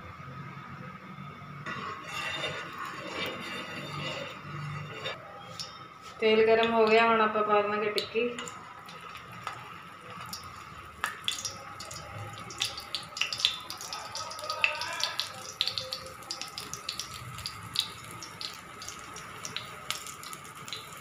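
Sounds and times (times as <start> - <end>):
frying in hot oil sizzling: 8.0 - 21.0.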